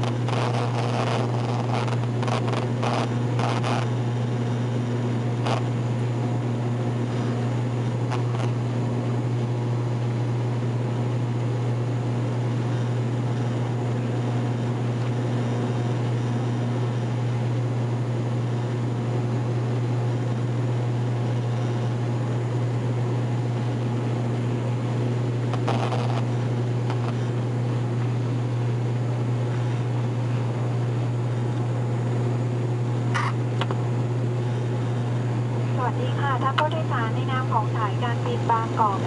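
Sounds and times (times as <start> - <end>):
turboprop cabin drone: 0.0 - 39.0.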